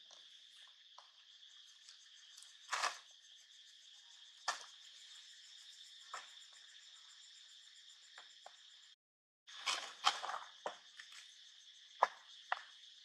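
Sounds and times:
high insect chorus: 0.0s - 13.0s.

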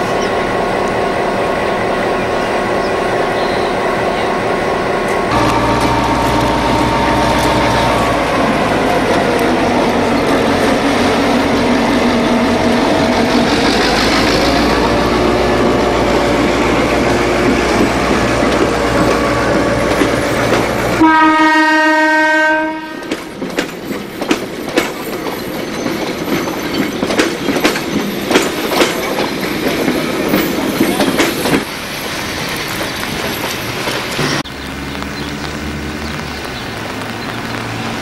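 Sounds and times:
train engine rumble: 0.0s - 38.0s
locomotive horn blast: 5.3s - 10.8s, 20.9s - 23.1s
wheels clicking over rail joints: 16.6s - 21.0s, 23.0s - 35.2s.

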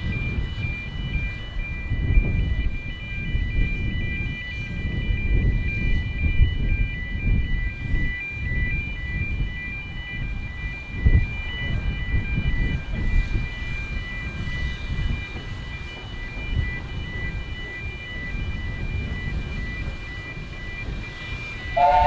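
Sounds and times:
level crossing alarm beeping: 0.0s - 22.0s.

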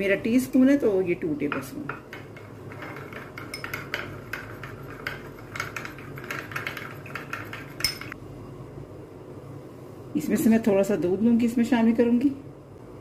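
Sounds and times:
spoon clinking against glass bowl: 3.4s - 4.1s, 7.8s - 8.2s.

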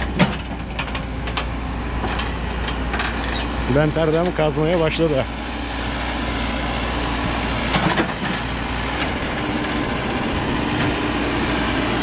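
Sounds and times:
metal clanks and knocks: 0.0s - 4.4s
diesel engine running: 0.0s - 12.0s.

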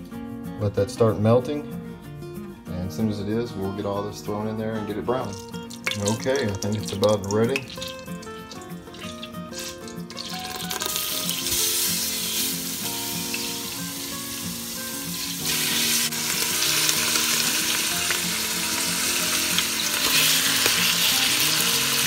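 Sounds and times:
meat sizzling in hot oil: 5.2s - 22.0s.

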